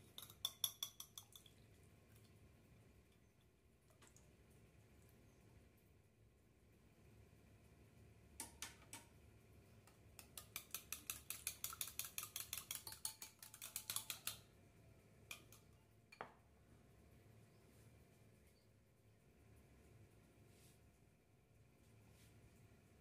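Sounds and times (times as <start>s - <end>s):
whisk clicking against bowl: 0.0s - 1.5s, 9.8s - 14.5s, 15.3s - 15.7s
whisk taps: 0.0s - 1.5s, 9.8s - 14.4s.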